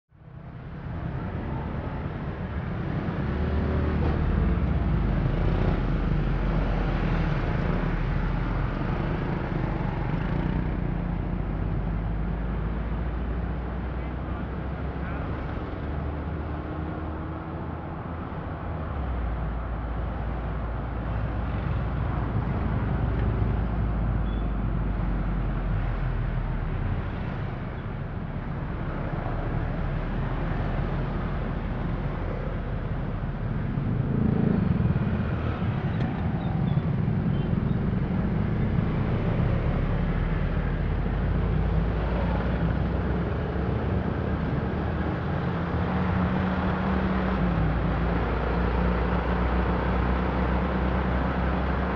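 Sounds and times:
traffic rumble: 0.1 - 51.9.

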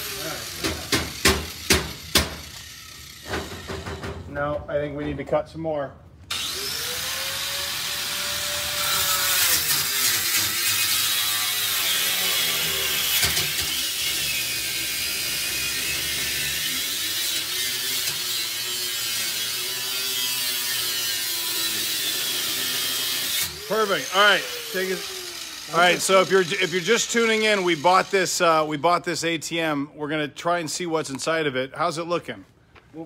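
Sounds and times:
angle grinder cutting metal: 0.0 - 4.1, 6.3 - 28.6.

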